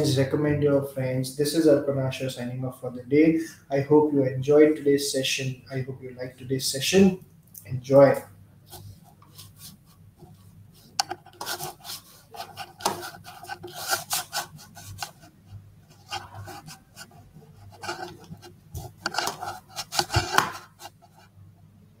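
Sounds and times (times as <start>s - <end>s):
rubbing and scraping: 8.7s - 21.4s.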